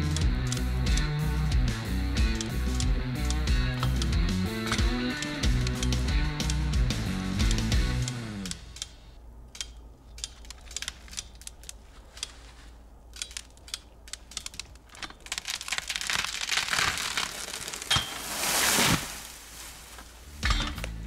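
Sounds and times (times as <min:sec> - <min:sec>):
tree jack lever clicking: 0:02.4 - 0:06.7, 0:07.5 - 0:12.4, 0:13.1 - 0:18.0
wood crackling and tearing: 0:10.1 - 0:20.2
tree crashing into brush: 0:15.2 - 0:20.2.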